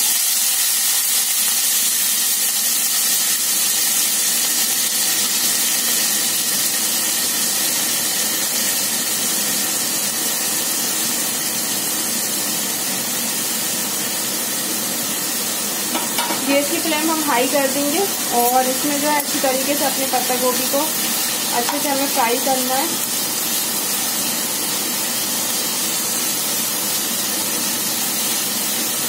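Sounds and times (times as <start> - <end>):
vegetables sizzling in hot oil: 0.0 - 29.0.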